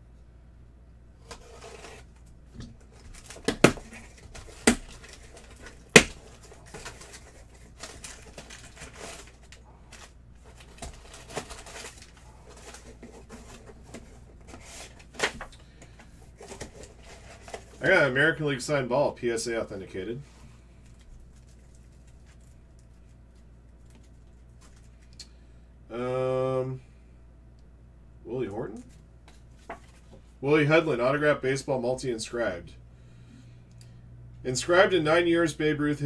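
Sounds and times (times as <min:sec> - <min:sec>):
packing paper crinkling: 0:02.8 - 0:17.9, 0:20.8 - 0:25.2
cardboard flaps snapping: 0:03.2 - 0:05.1, 0:05.9 - 0:06.2.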